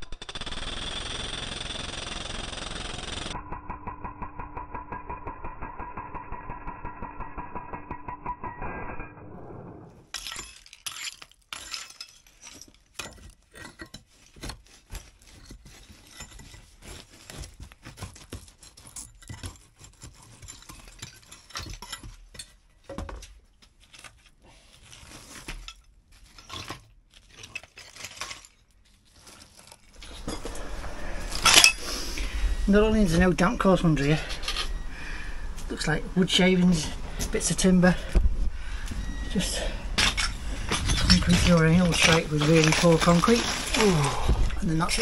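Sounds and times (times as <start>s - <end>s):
shovel scraping: 10.0s - 22.4s, 23.8s - 34.8s, 39.2s - 45.0s
clinks of concrete and tile chunks: 10.1s - 24.4s, 25.0s - 30.7s, 31.3s - 31.8s, 39.3s - 45.0s.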